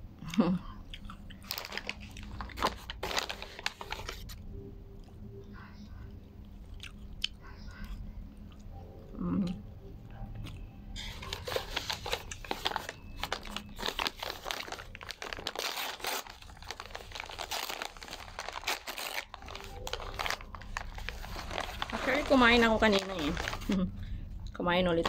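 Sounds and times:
quiet chewing: 0:00.3 - 0:02.6, 0:05.0 - 0:11.4
paper bag rustling: 0:01.5 - 0:04.4, 0:11.0 - 0:23.9.

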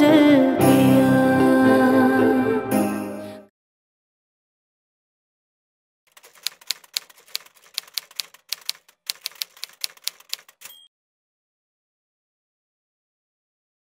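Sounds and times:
typewriter keystroke clacks: 0:06.1 - 0:10.9.

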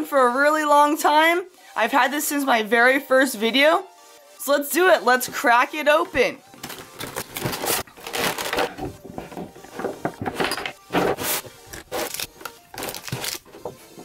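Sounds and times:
packaging crackling and crinkling: 0:06.6 - 0:09.2, 0:11.1 - 0:13.7.

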